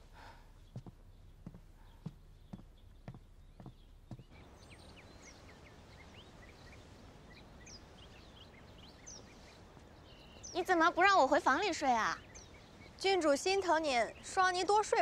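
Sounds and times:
faint steady outdoor hiss: 0.0 - 15.0
small birds chirping: 0.0 - 15.0
footsteps on wooden floor: 0.7 - 4.3.

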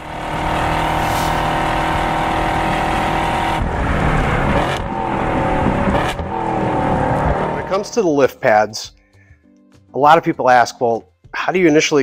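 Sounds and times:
car engine at high revs: 0.0 - 7.8.

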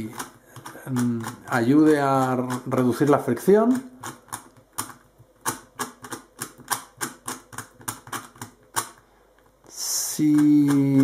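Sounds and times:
sharp plastic puzzle clicks: 0.0 - 9.0, 9.9 - 11.0.

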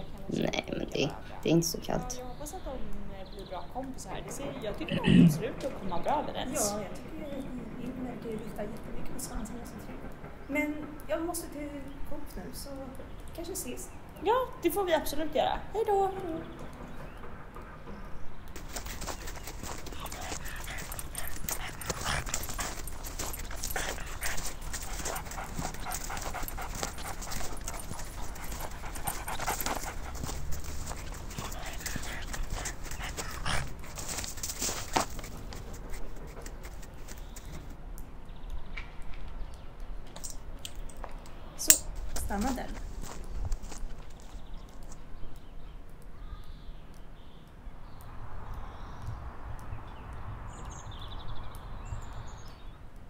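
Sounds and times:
dog panting: 18.6 - 37.7.

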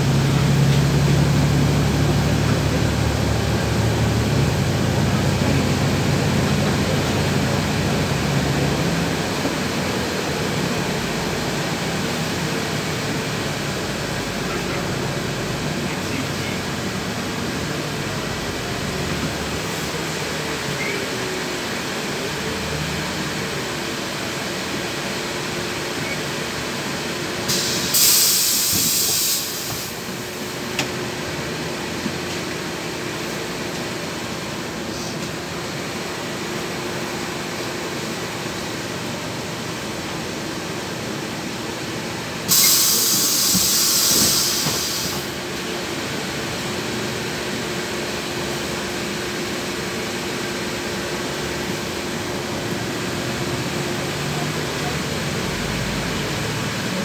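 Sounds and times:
diesel bus engine idling: 0.0 - 57.0
compressed air hissing: 27.5 - 30.1, 42.5 - 45.4.

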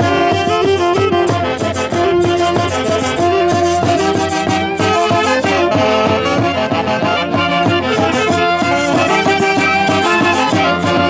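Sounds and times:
saxophones playing together: 0.0 - 11.0
small drum beat: 0.0 - 11.0.

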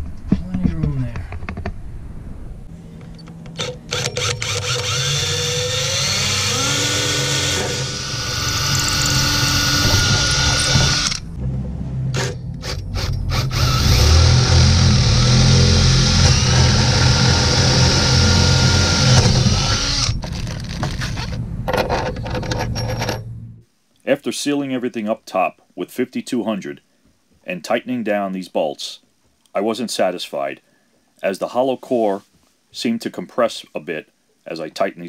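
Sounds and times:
cordless drill whining: 3.5 - 11.2, 12.2 - 20.8.

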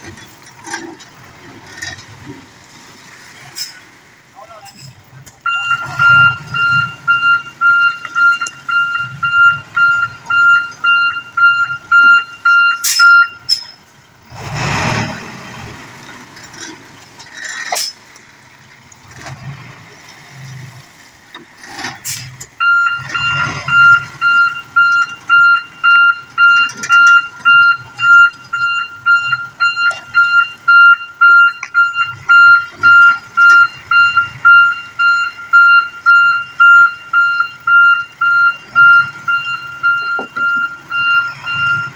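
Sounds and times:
truck reversing alarm beeping: 4.8 - 14.0, 21.8 - 41.9.

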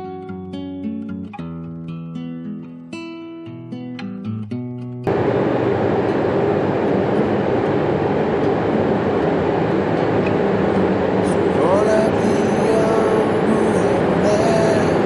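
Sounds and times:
acoustic guitar music: 0.0 - 15.0
train running: 5.1 - 15.0.

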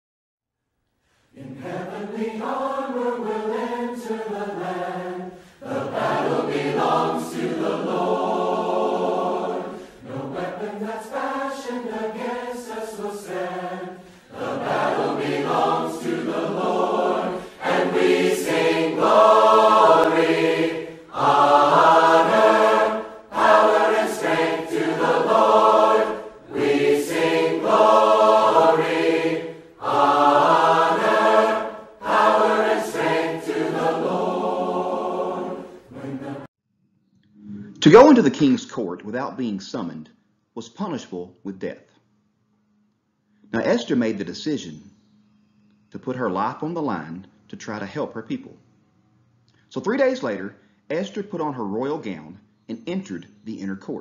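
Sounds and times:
choir singing: 1.3 - 36.5.

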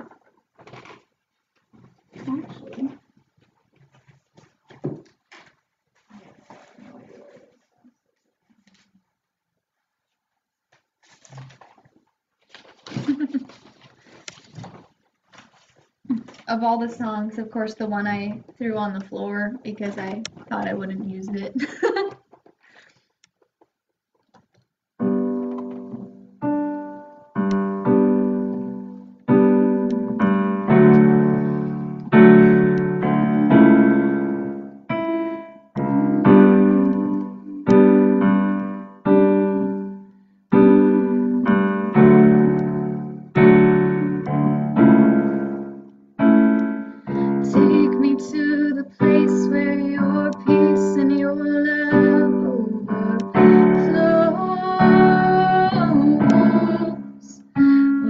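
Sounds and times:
higher piano notes: 25.0 - 58.0
piano chords ringing: 25.0 - 58.0.

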